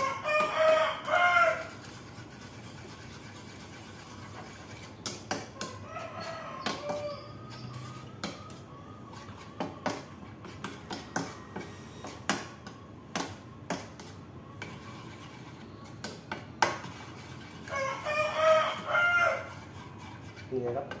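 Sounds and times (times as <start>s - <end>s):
rooster crowing: 0.0s - 1.9s, 5.6s - 10.0s, 17.6s - 19.6s.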